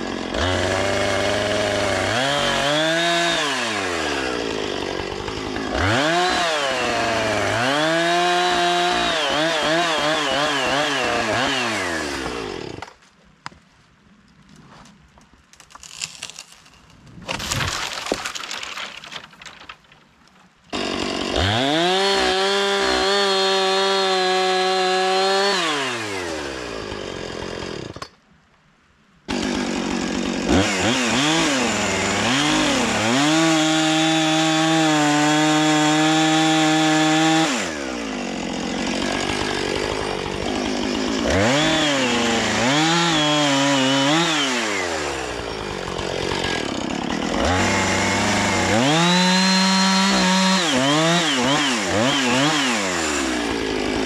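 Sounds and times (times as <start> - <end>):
chainsaw revving: 0.0 - 12.9, 20.7 - 28.0, 29.3 - 54.0
crackling noise: 13.7 - 20.5.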